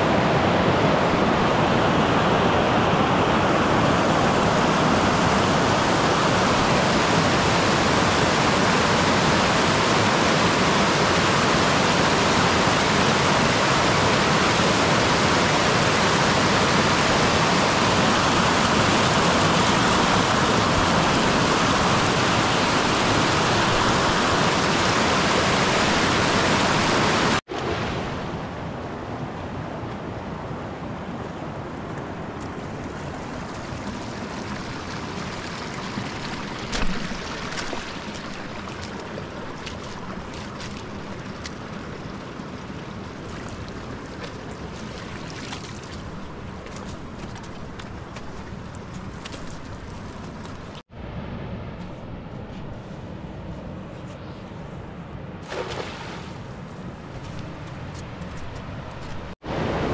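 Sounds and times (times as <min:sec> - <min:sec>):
fast river rushing: 0:00.0 - 0:51.3, 0:55.5 - 0:59.9
quieter water flow: 0:00.0 - 0:59.9.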